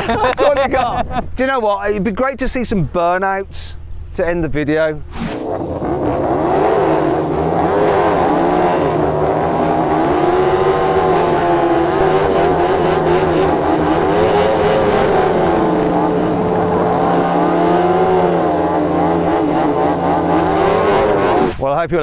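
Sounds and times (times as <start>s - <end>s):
motorcycle engines revving high: 5.0s - 21.6s.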